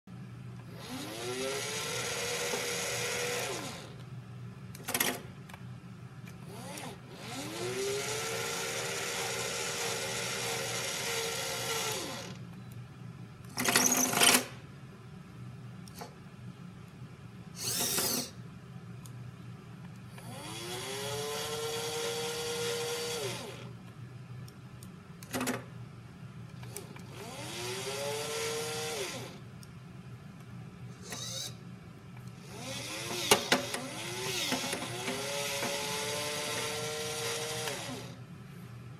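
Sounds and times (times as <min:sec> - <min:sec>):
small motor whine: 0:00.7 - 0:04.0, 0:06.4 - 0:12.4, 0:17.6 - 0:18.4, 0:20.2 - 0:23.7, 0:26.7 - 0:29.4, 0:30.9 - 0:31.6, 0:32.4 - 0:38.2
short whirring buzzes: 0:17.6 - 0:18.4.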